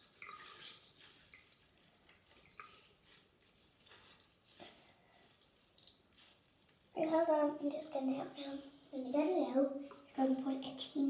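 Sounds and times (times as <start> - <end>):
water dripping in sink: 0.0 - 3.1, 3.8 - 7.0.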